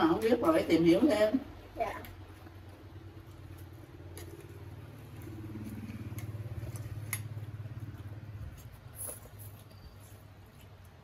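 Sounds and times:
vehicle engine running: 2.7 - 10.2.

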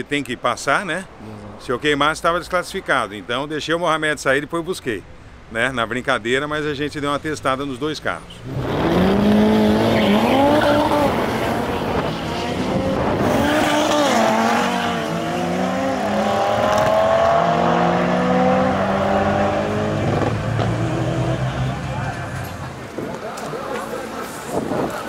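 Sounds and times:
drag cars accelerating hard: 8.4 - 22.9.

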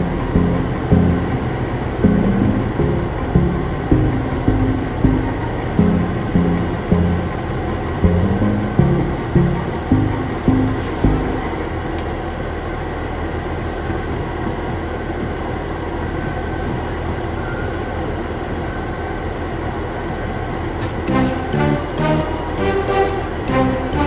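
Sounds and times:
diesel truck engine running: 0.0 - 13.3
road noise: 0.0 - 24.0.

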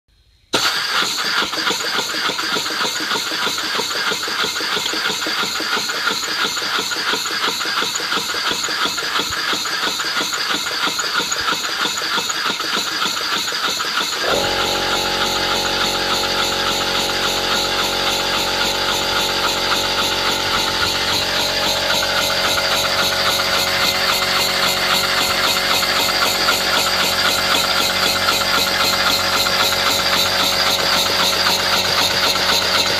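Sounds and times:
model steam engine puffing: 0.5 - 32.9
steady hum: 14.2 - 29.0.

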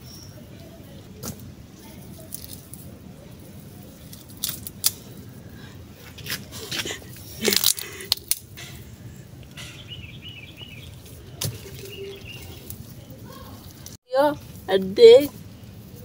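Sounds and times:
soft rustling of earth: 0.0 - 16.0
roots cracking and crunching: 2.0 - 3.0, 3.6 - 5.4, 6.0 - 8.7.

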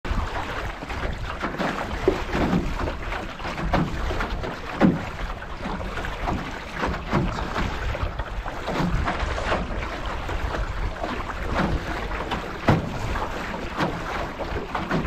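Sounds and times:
water slapping against metal hull: 0.0 - 15.0
wind buffeting microphone: 0.1 - 15.0.

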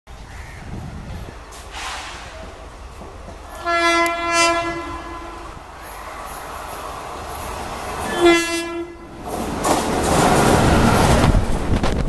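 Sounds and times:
locomotive air horn blast: 3.5 - 5.6, 8.0 - 9.1.

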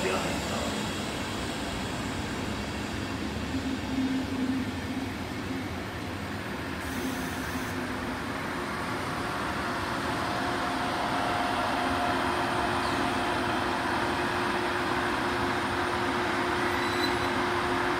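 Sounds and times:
train wheels rumbling on rails: 0.0 - 17.9.

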